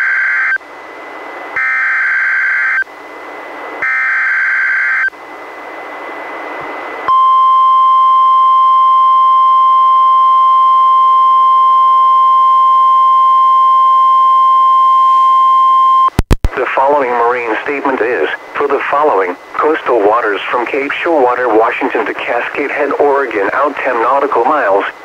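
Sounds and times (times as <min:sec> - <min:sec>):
steady warning alarm tone: 0:00.0 - 0:00.6, 0:01.6 - 0:02.8, 0:03.8 - 0:05.1
radio hiss: 0:16.2 - 0:25.0.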